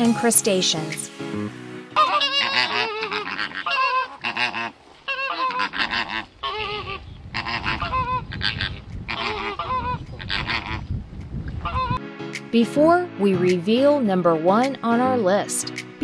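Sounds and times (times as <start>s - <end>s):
flamingos calling: 1.9s - 10.9s, 11.6s - 12.0s.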